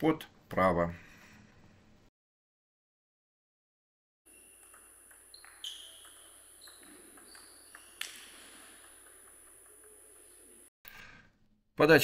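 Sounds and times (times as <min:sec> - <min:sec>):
shoe squeaks: 0:04.3 - 0:10.6
table tennis ball clicking: 0:04.4 - 0:10.4.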